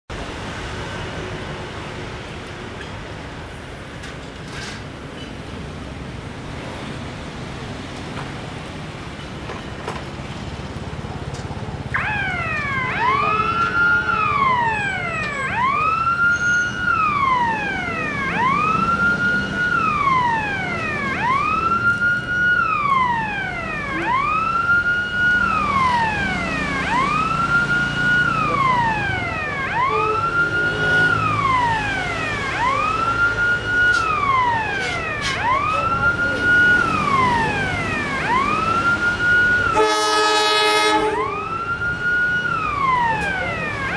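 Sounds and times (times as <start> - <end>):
wailing siren: 11.8 - 43.9.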